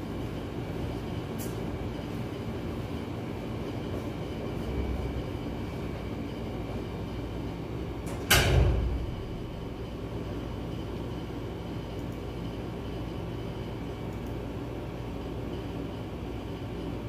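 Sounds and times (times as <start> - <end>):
low rumbling background noise: 0.0 - 17.0
sudden loud bang: 8.3 - 9.8.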